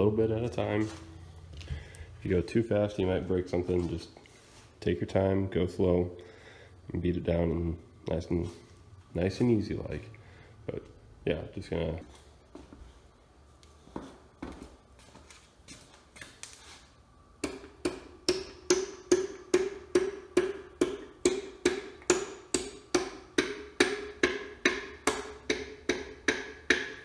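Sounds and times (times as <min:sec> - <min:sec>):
hammer tapping metal: 0:17.4 - 0:27.0.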